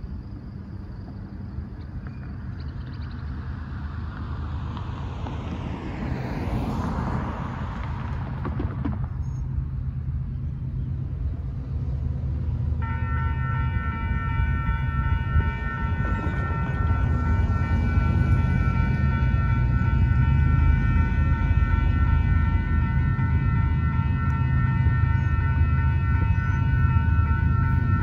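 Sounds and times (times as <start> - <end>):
diesel freight train rumble: 0.0 - 28.0
car passing: 2.3 - 28.0
crossing warning bell ringing: 12.8 - 28.0.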